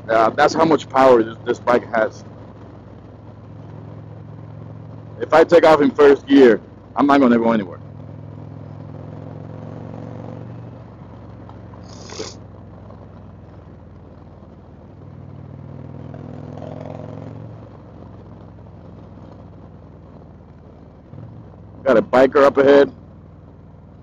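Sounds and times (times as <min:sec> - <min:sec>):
motorcycle engine running: 0:00.0 - 0:24.0
brief hiss: 0:11.8 - 0:12.4.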